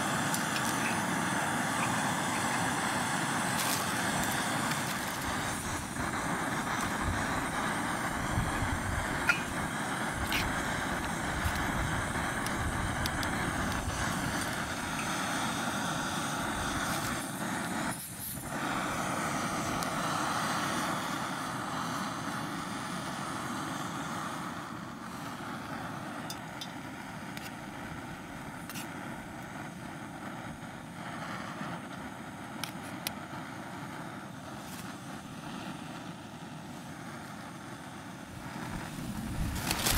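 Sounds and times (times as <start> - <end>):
camping stove hissing: 0.0 - 39.9
spoon clinking against metal mug: 9.3 - 9.6.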